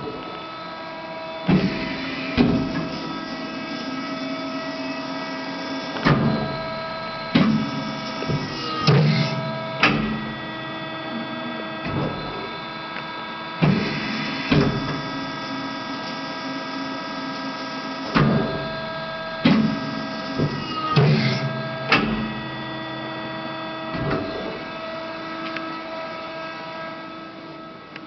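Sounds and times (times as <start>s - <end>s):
machine hum: 0.0s - 28.0s
machine clunks: 1.4s - 3.2s, 6.0s - 10.4s, 11.1s - 12.5s, 13.6s - 15.0s, 18.1s - 18.8s, 19.4s - 22.8s, 23.9s - 24.7s.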